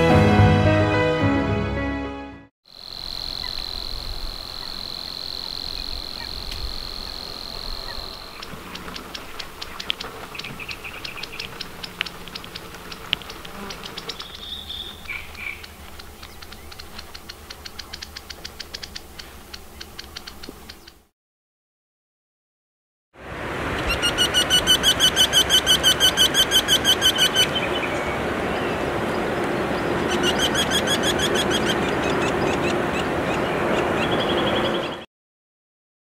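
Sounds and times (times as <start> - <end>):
bird song of dry ticks: 5.6 - 21.1, 30.1 - 33.1
high reeling bird trill: 23.8 - 27.6, 30.0 - 32.1.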